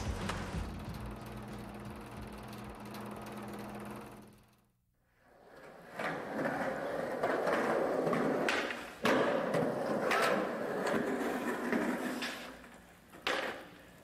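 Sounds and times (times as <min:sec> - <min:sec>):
skateboard wheels rolling on concrete: 0:00.0 - 0:04.5, 0:05.1 - 0:14.0
skateboard clacking: 0:05.7 - 0:14.0.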